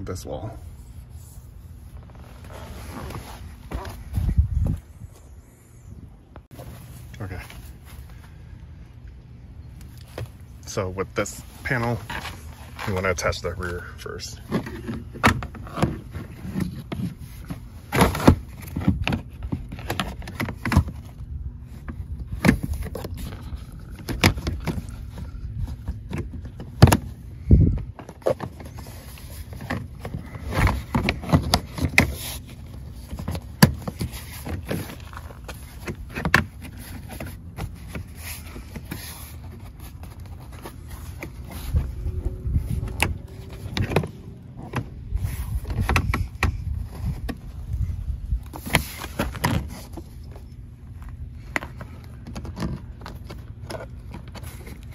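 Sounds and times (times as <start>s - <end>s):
low rumble: 40.0s - 48.5s.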